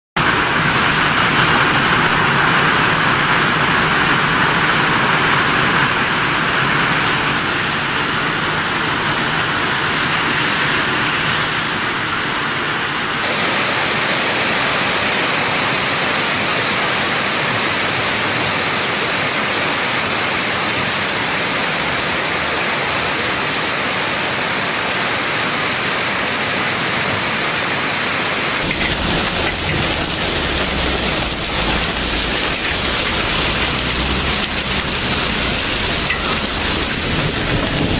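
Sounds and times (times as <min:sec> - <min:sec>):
hail pelting on pavement: 0:00.2 - 0:11.2, 0:28.6 - 0:37.9.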